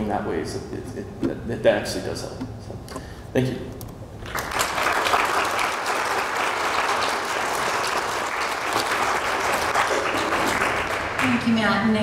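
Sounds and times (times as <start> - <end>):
audience applauding: 4.2 - 12.0.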